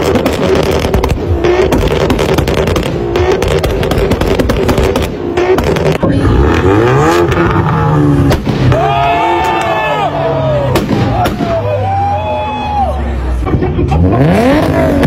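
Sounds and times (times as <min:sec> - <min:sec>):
car engine revving: 0:00.0 - 0:09.5, 0:13.0 - 0:15.0
exhaust backfiring pops and bangs: 0:00.0 - 0:09.8.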